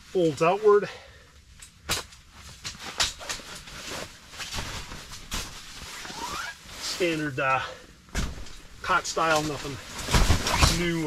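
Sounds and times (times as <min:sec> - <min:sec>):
fabric rustling: 0:02.2 - 0:07.4, 0:08.3 - 0:11.0.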